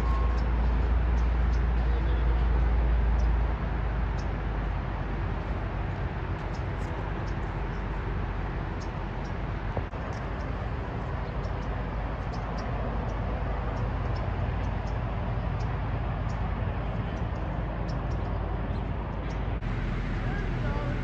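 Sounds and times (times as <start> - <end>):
low rumble: 0.0 - 21.0.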